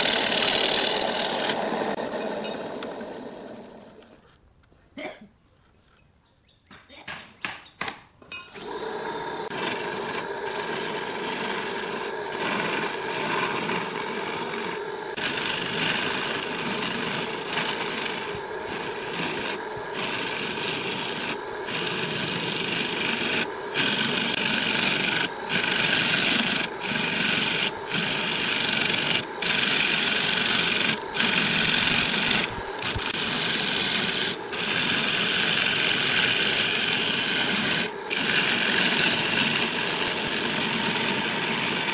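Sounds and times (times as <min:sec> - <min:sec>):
lathe motor hum: 0:00.0 - 0:04.2, 0:08.6 - 0:41.9
tool scraping spinning wood: 0:00.0 - 0:04.4, 0:08.5 - 0:41.9.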